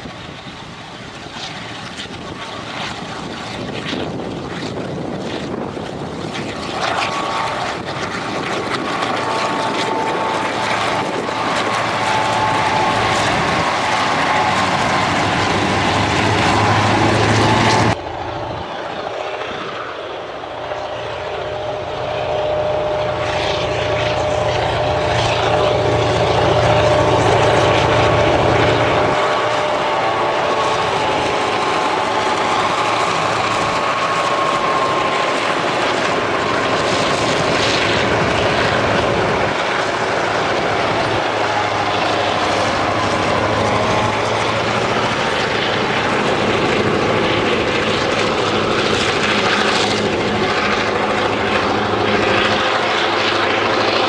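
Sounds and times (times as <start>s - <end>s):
diesel locomotive engine drone: 0.0s - 54.0s
train rumble: 0.0s - 54.0s.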